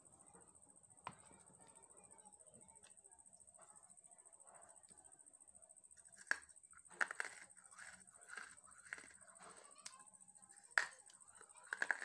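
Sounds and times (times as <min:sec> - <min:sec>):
person chewing crunchy clay: 0:06.1 - 0:09.2, 0:11.6 - 0:12.0.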